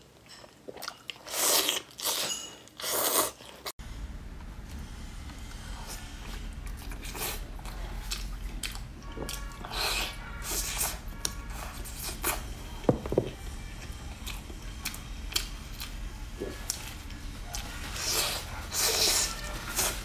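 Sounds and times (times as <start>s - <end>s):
biting and chewing meat: 6.3s - 12.6s.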